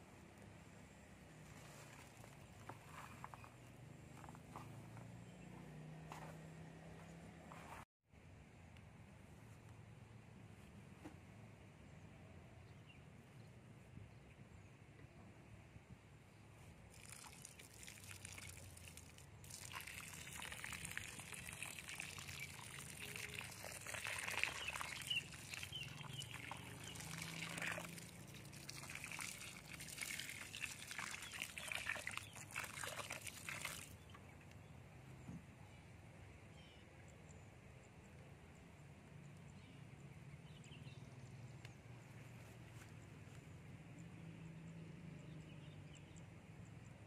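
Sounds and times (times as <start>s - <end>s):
water splashing onto soil: 16.9s - 34.1s.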